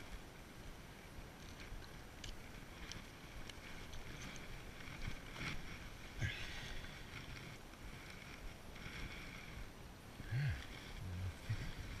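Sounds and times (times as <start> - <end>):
soft taps and scuffs on dirt: 0.0 - 9.5
steady outdoor hiss: 0.0 - 12.0.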